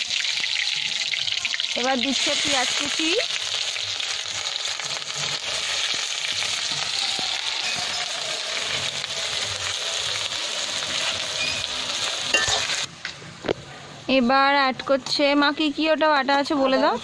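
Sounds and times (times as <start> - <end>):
onions sizzling in hot oil: 0.0 - 12.9.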